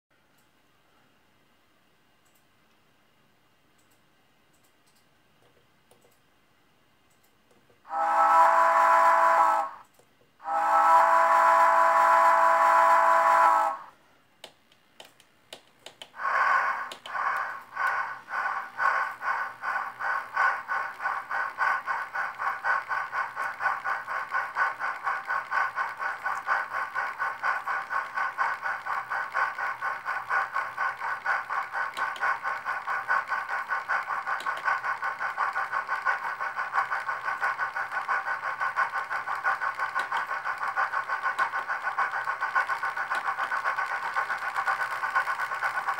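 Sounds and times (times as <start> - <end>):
model locomotive whistle: 7.9 - 14.0
steam exhaust chuffs: 7.9 - 14.0, 15.8 - 45.9.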